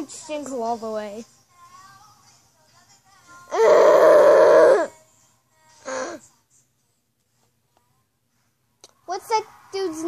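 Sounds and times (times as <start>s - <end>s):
girl wailing: 3.5s - 4.9s.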